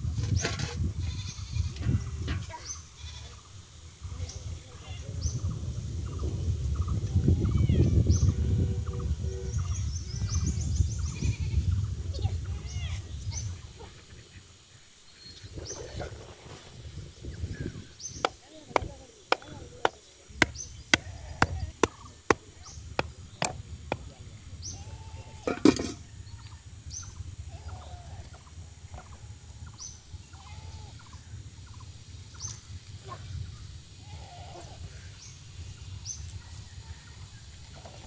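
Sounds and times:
stick knocking on metal pot: 18.2s - 22.4s.

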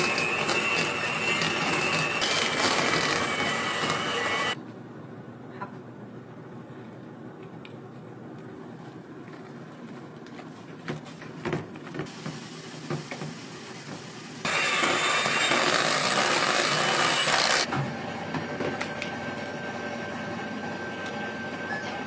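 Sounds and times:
electric hand mixer whirring: 0.0s - 4.6s, 14.4s - 17.7s.

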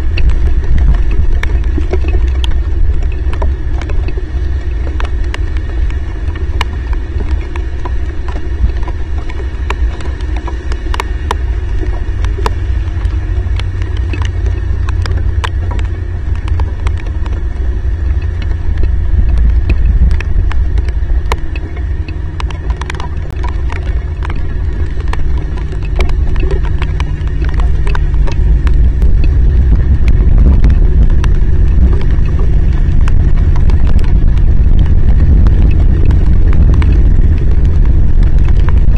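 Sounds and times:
heavy rain and wind rumble: 0.0s - 38.9s
raindrops ticking on camera: 0.0s - 38.9s.

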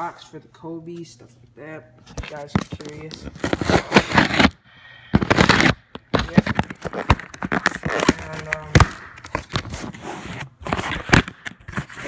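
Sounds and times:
packaging rustling and crinkling: 2.1s - 4.6s, 5.2s - 12.0s.

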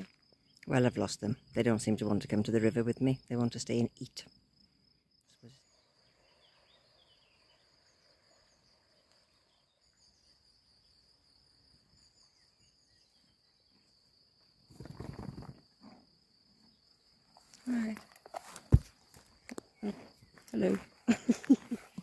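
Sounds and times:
insects chirring: 0.0s - 22.0s
faint bird chirps: 5.0s - 15.6s.

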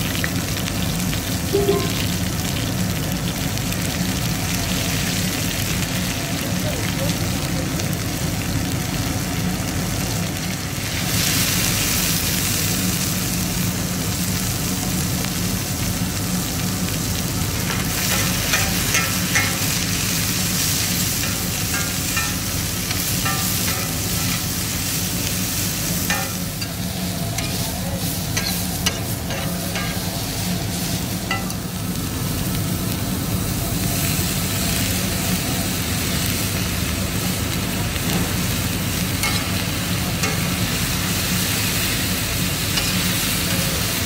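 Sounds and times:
vegetables sizzling on iron pan: 0.0s - 44.0s.

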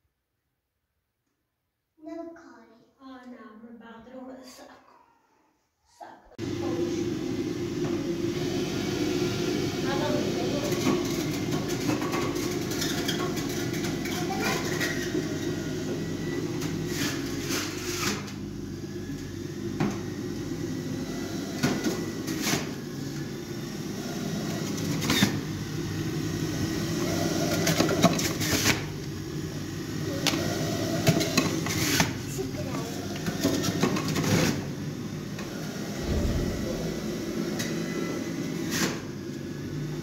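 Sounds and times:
low mechanical hum: 36.0s - 37.7s.

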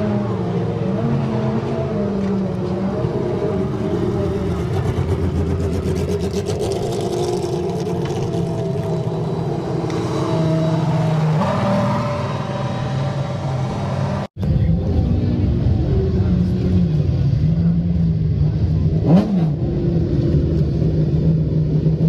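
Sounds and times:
race car engines idling: 0.1s - 10.2s.

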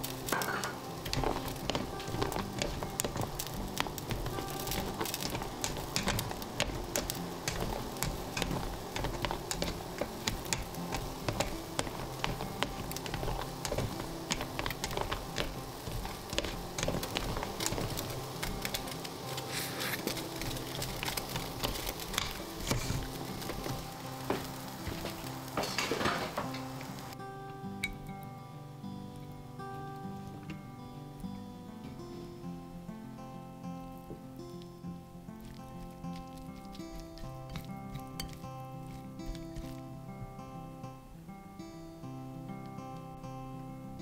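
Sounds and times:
steam hissing: 0.0s - 27.2s
spatula scraping metal basket: 0.3s - 23.8s.

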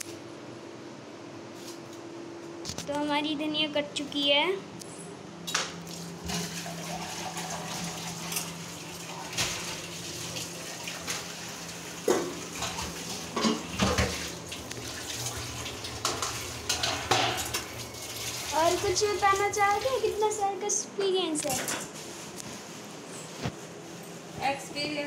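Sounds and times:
water rushing from tap: 6.2s - 20.1s
steel utensils clattering: 16.0s - 17.6s.

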